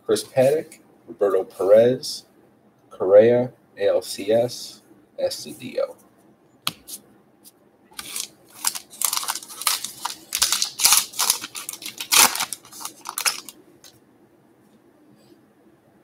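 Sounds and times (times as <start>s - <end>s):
card pack wrapper tearing and crinkling: 8.0s - 13.6s.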